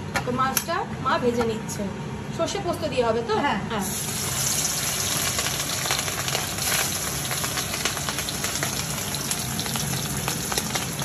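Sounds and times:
fish frying in hot oil: 0:03.8 - 0:11.0.

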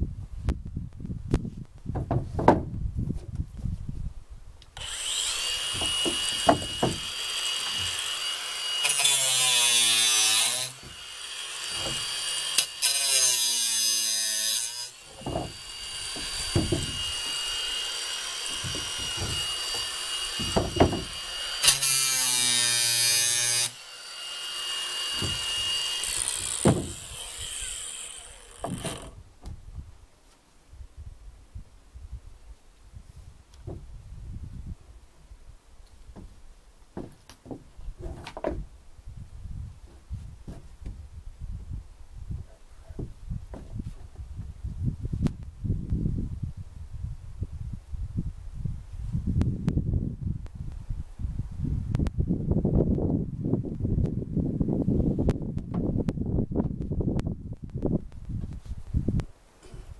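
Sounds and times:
knocks of wood being handled: 0:01.7 - 0:03.5, 0:05.7 - 0:08.0, 0:11.7 - 0:12.1, 0:15.1 - 0:17.4, 0:18.4 - 0:21.2, 0:25.1 - 0:25.5, 0:26.1 - 0:27.2, 0:28.5 - 0:29.6, 0:33.6 - 0:33.9, 0:36.1 - 0:38.7, 0:39.8 - 0:41.0, 0:42.4 - 0:44.3
power tool whining: 0:04.8 - 0:29.2.

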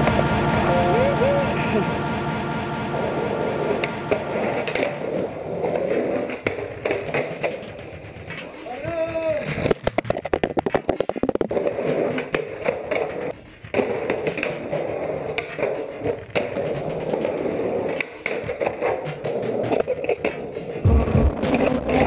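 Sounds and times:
skateboard wheels rolling on concrete: 0:03.0 - 0:22.0
skateboard clacks: 0:04.7 - 0:22.0.

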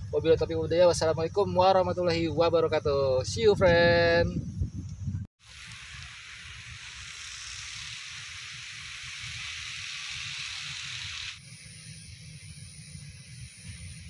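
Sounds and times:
wind rumble on microphone: 0:00.0 - 0:06.0
steady high hiss: 0:00.0 - 0:14.0.

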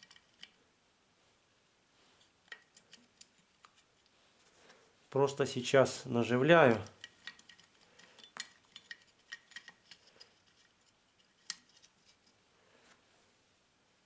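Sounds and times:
small metal nuts clinking: 0:06.7 - 0:12.4.

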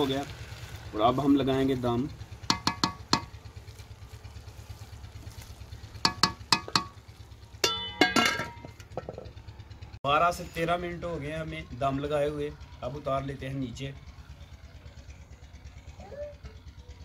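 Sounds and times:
wooden spatula knocking on pot rim: 0:02.5 - 0:03.3, 0:06.0 - 0:07.0
metal lid clattering onto pot: 0:07.6 - 0:09.3.

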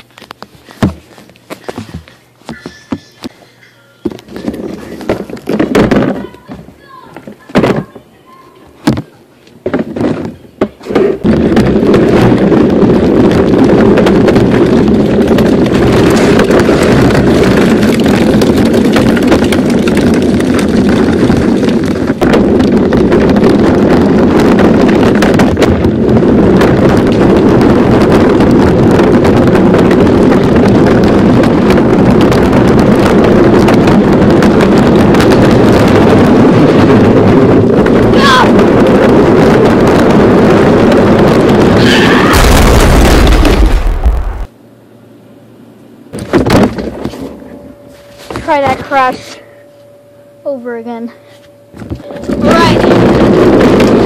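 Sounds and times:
toy car motor and wheels rumbling: 0:09.7 - 0:42.2.

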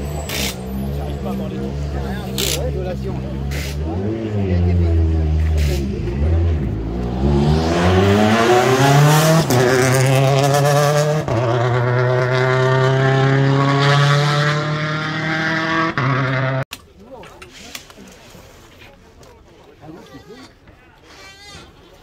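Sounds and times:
rally car accelerating hard: 0:02.9 - 0:16.7.

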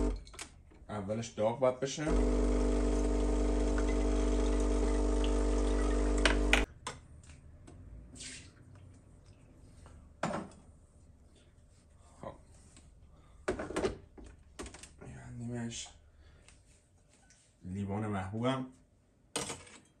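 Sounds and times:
espresso machine pump running: 0:02.1 - 0:06.7.

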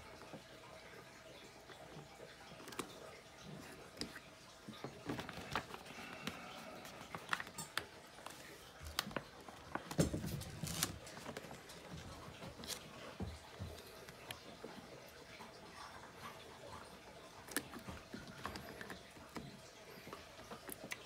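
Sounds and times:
stickers peeling and crinkling: 0:05.0 - 0:13.0.

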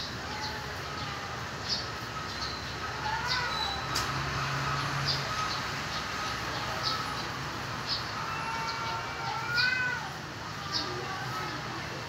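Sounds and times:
steady background noise: 0:00.0 - 0:12.0
cats yowling: 0:00.1 - 0:01.4, 0:02.8 - 0:03.9, 0:07.9 - 0:11.6.

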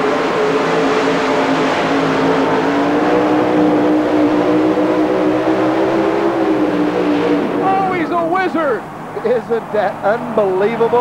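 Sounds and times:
pulling truck engine at full throttle: 0:00.0 - 0:11.0.

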